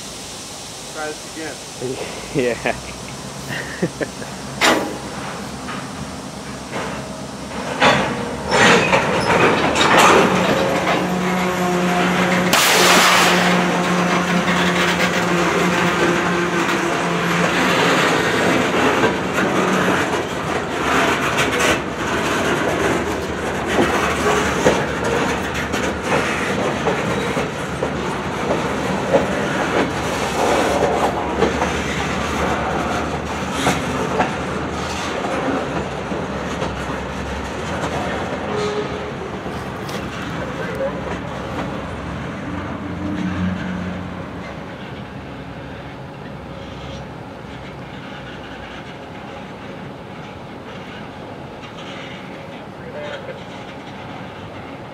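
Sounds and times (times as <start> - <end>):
burst of hiss: 0.0 - 7.5
train wheels clanking over rail joints: 3.1 - 54.9.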